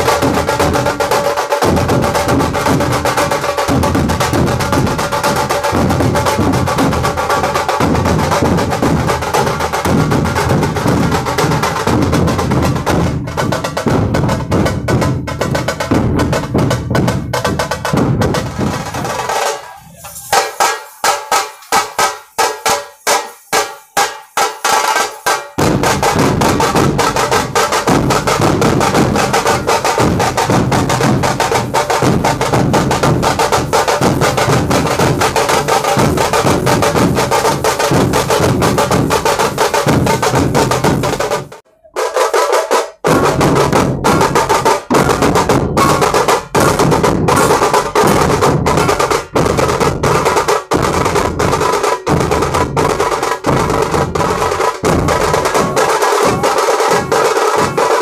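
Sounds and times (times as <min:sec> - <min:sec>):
drum ensemble playing: 0:00.0 - 0:58.0.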